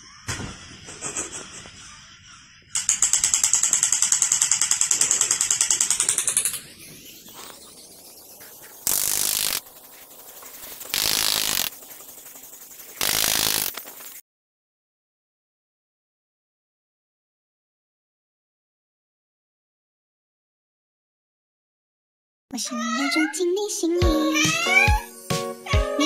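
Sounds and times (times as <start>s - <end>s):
toy machine-gun effect: 2.8s - 6.8s, 8.8s - 9.7s, 10.8s - 14.2s
short bursts of noise: 8.8s - 14.2s.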